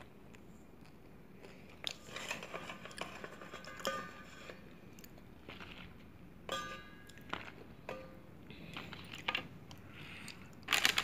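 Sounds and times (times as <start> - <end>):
bean pods rustling and crunching: 8.6 - 11.0.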